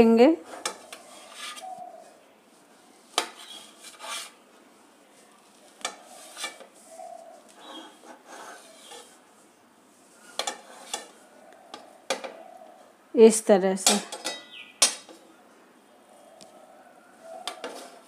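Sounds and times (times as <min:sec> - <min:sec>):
knife scraping steel plate: 0:00.4 - 0:01.7, 0:03.1 - 0:04.4, 0:05.8 - 0:06.8, 0:07.6 - 0:09.2, 0:10.2 - 0:11.2.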